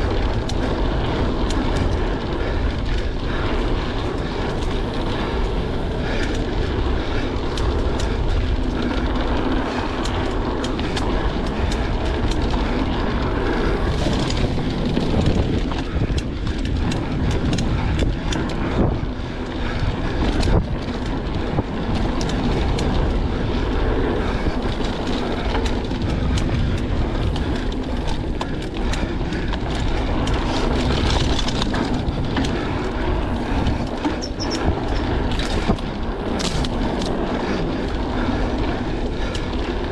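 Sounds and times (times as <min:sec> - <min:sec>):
bike clicking and rattling: 0:00.0 - 0:39.9
tyres rumbling on dirt: 0:00.0 - 0:39.9
wind buffeting microphone: 0:00.0 - 0:39.9.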